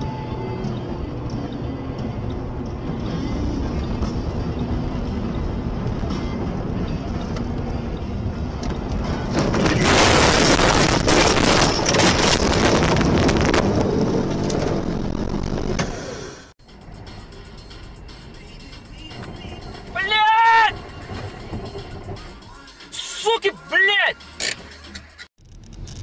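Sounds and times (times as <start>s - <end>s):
car cabin noise: 0.0s - 16.3s, 18.7s - 22.5s.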